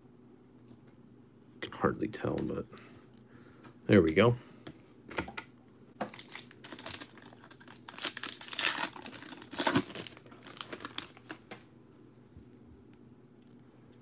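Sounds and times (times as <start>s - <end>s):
foil wrapper crinkling: 6.1s - 11.6s.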